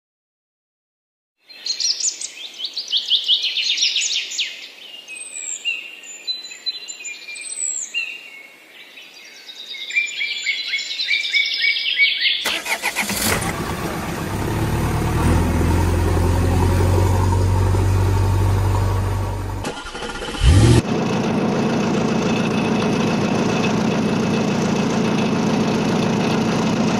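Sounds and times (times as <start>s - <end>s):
birds chirping and singing: 1.5s - 13.4s
engine running with low hum: 12.5s - 26.9s.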